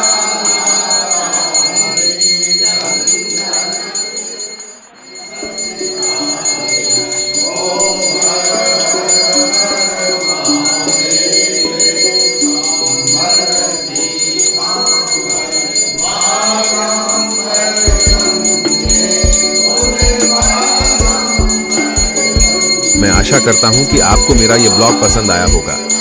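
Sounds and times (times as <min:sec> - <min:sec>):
group singing a hymn: 0:00.0 - 0:26.0
hand bell ringing: 0:00.0 - 0:26.0
drum beating: 0:17.9 - 0:24.5.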